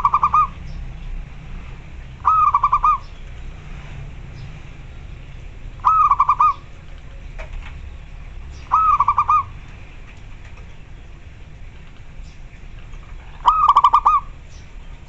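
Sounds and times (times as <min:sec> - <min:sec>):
zebra dove cooing: 0:00.0 - 0:00.6, 0:02.2 - 0:03.2, 0:05.8 - 0:07.5, 0:08.6 - 0:09.6, 0:13.1 - 0:14.4.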